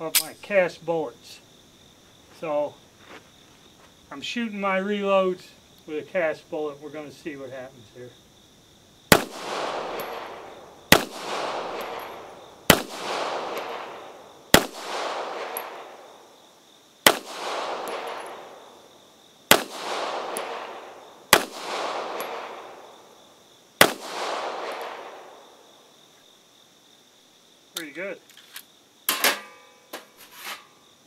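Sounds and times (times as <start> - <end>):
pistol shots with echo: 9.1 - 16.1, 17.0 - 18.8, 19.5 - 23.0, 23.8 - 25.5.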